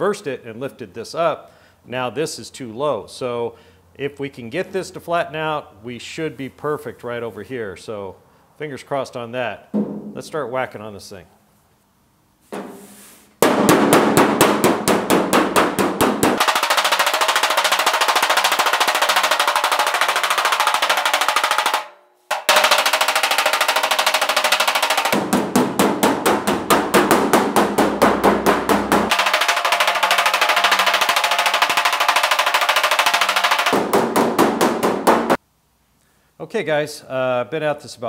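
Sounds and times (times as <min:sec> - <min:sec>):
body slapper striking steel panel: 0:09.7 - 0:10.2, 0:12.5 - 0:16.4, 0:25.1 - 0:29.3, 0:33.7 - 0:35.4.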